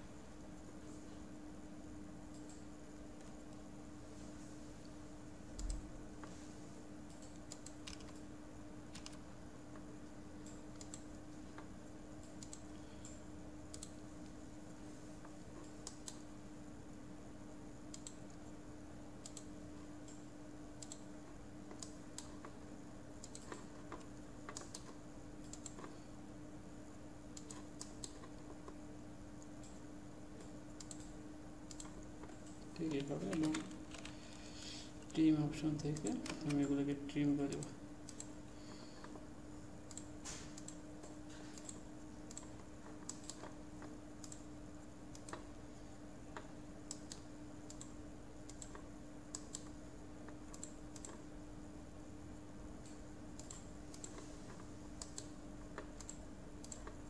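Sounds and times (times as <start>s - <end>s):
steady low hum: 0.0s - 57.0s
keyboard keystrokes: 7.1s - 8.3s, 8.9s - 9.2s, 31.7s - 34.2s, 35.7s - 36.8s.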